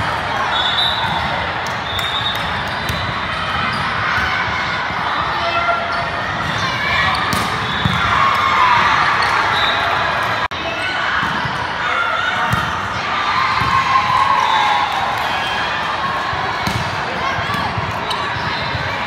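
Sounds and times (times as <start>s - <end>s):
volleyball ball contacts: 6.3s - 9.6s, 16.1s - 19.0s.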